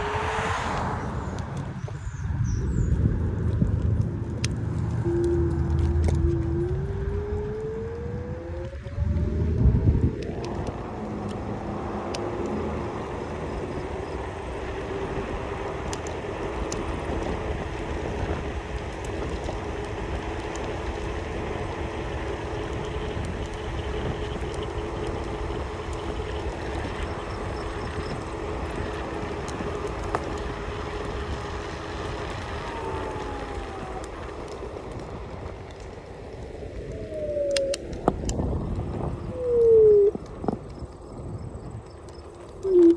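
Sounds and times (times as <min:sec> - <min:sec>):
wind and wheels rumbling: 0:00.0 - 0:42.9
steady hum: 0:04.0 - 0:15.6.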